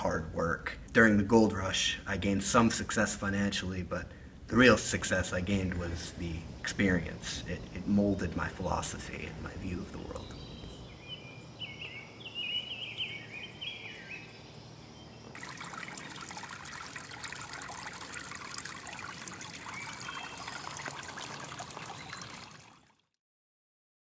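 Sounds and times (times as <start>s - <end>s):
bird chirping: 6.6s - 16.7s, 17.9s - 22.6s
brook trickling: 15.2s - 23.2s.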